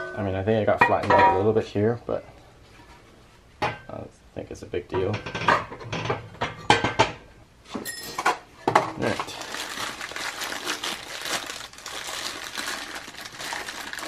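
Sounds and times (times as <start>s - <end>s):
plastic bag crinkling: 9.0s - 14.0s.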